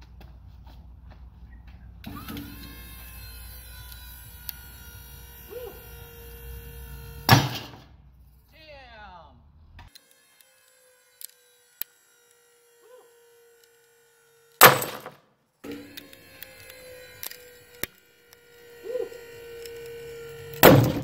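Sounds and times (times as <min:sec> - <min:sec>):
bolt breaking with sharp crack: 0:14.6 - 0:15.2, 0:20.5 - 0:21.0.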